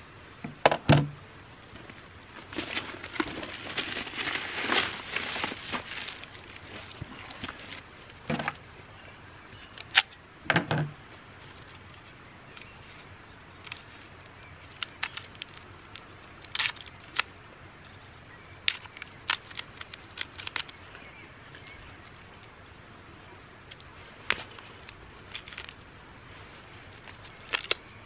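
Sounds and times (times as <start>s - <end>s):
cord rustling: 1.8s - 8.6s, 18.7s - 20.8s, 23.7s - 28.0s.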